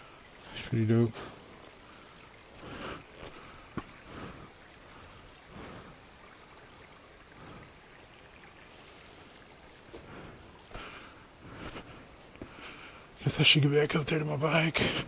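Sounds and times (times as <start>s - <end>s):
water trickling: 0.0s - 15.0s
footsteps on rock and gravel: 2.5s - 4.4s, 9.9s - 12.6s.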